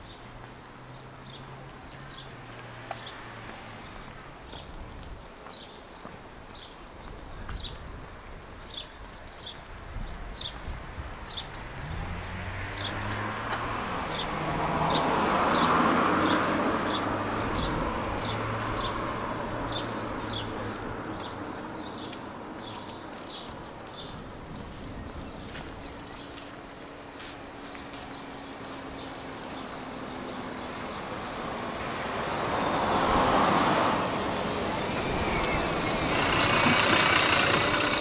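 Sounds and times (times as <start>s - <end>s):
vehicle passing by: 11.3s - 38.0s.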